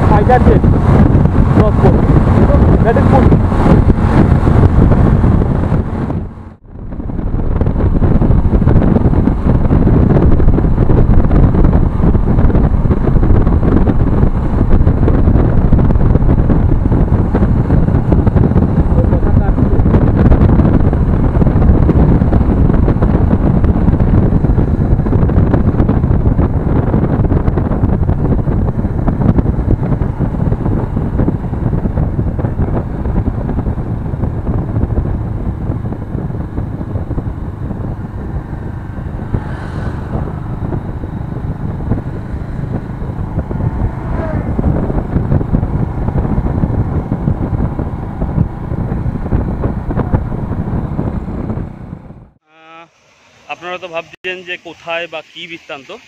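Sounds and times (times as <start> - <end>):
motorcycle engine: 0.0 - 52.4
road noise: 0.0 - 56.0
wind rushing over microphone: 0.0 - 56.0.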